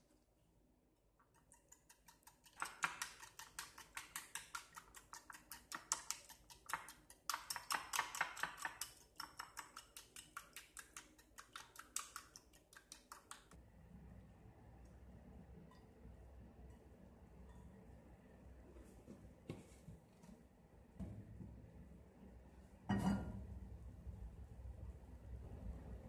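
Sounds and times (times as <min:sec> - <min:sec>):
whisk clicking against bowl: 0:01.3 - 0:13.5
faint low hum: 0:13.5 - 0:26.0.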